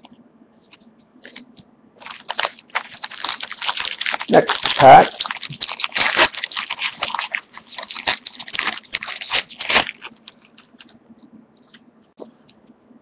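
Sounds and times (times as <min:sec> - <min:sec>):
plastic wrapper tearing and crinkling: 0:02.0 - 0:10.9.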